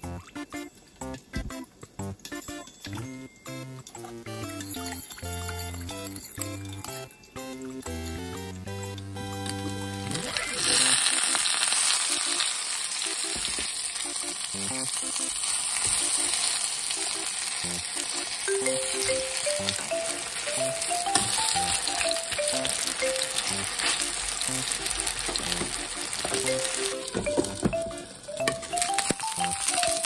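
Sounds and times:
soft background music: 0.0s - 30.0s
food sizzling in oil: 9.6s - 30.0s
metal tongs turning food: 10.0s - 27.4s.

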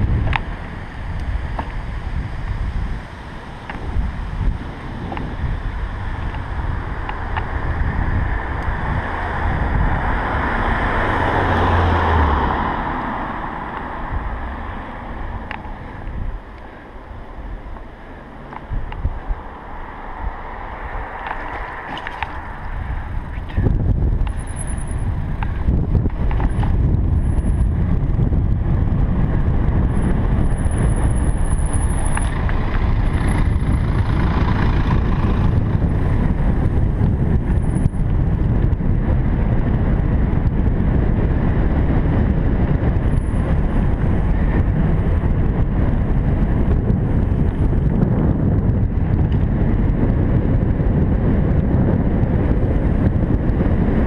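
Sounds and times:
road noise: 0.0s - 54.0s
wind rush: 0.0s - 54.0s.

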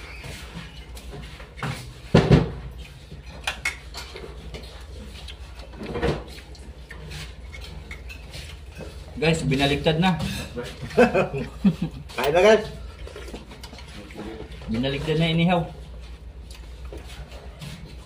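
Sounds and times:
plates and utensils clinking: 9.9s - 11.4s.

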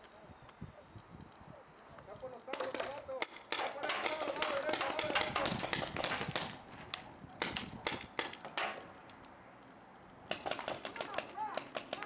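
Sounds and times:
paintball markers firing pops: 2.5s - 9.4s, 10.3s - 12.0s.

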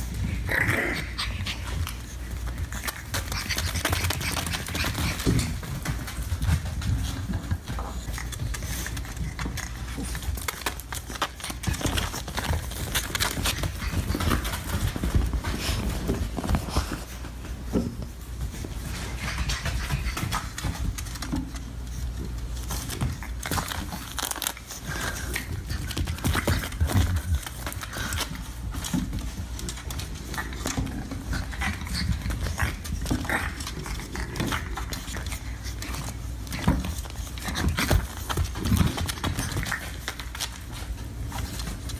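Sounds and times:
puppy paws tapping on floor: 0.0s - 41.9s.

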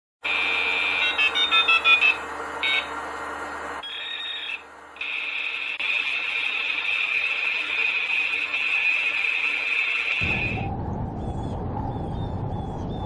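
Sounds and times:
steady high-pitched tone: 3.8s - 13.0s
low hum: 4.6s - 13.0s.

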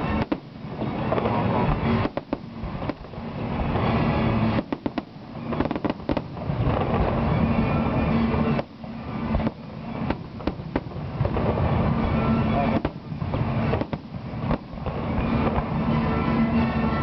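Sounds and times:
fireworks bangs: 0.0s - 17.0s
rumble of fireworks bursts: 0.0s - 17.0s.

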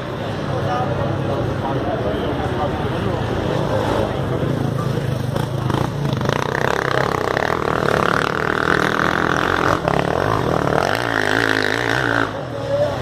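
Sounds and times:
motorcycle engines revving hard: 2.6s - 13.0s.

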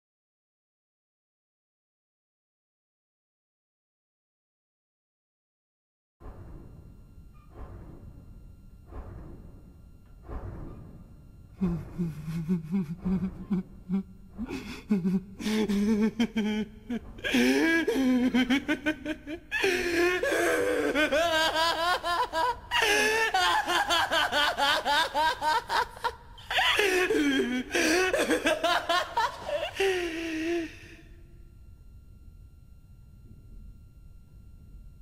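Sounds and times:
man laughing: 11.6s - 31.1s.

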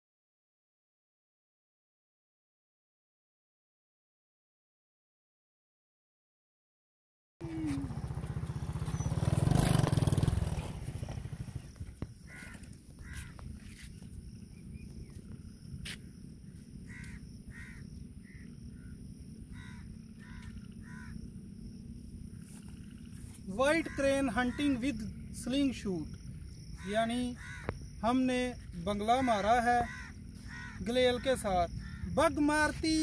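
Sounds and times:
short animal calls: 12.3s - 13.9s, 19.5s - 21.2s, 26.8s - 27.8s, 29.4s - 30.8s.

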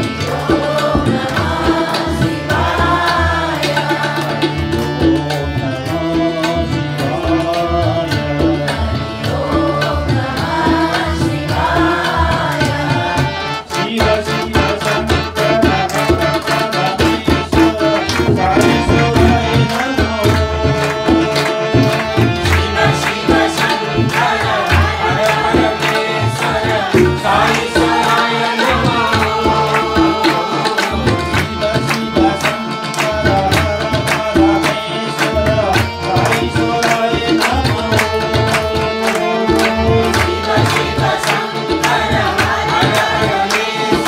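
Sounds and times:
electronic keyboard: 0.0s - 44.0s
person singing through microphone: 0.0s - 44.0s
tabla drumming: 0.0s - 44.0s
voices joining in singing: 18.3s - 32.4s.

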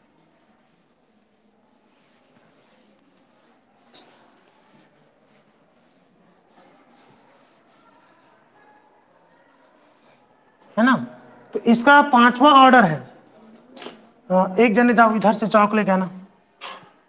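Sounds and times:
duster wiping a chalkboard: 0.0s - 10.2s.

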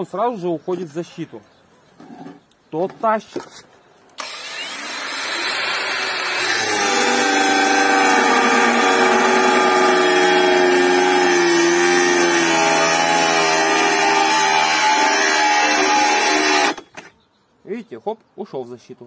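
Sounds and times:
angle grinder cutting metal: 4.2s - 16.9s.

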